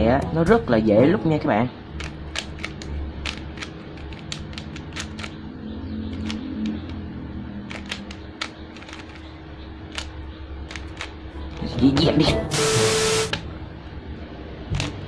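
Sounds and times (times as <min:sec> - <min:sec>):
puzzle cube layers clicking: 0:02.0 - 0:05.4, 0:06.1 - 0:07.0, 0:07.7 - 0:09.3, 0:09.9 - 0:11.2.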